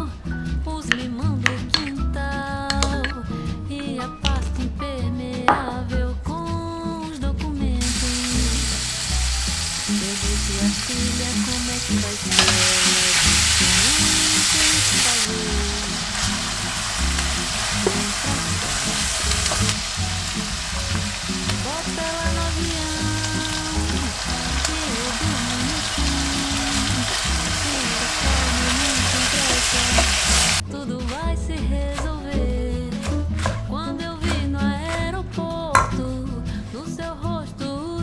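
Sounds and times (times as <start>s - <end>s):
meat sizzling in a frying pan: 7.8s - 30.6s
spatula stirring in pan: 8.9s - 22.5s.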